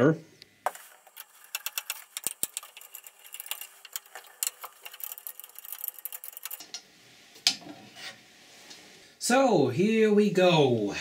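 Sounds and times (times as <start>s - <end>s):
screwdriver metallic clicks and scrapes: 1.0s - 6.8s.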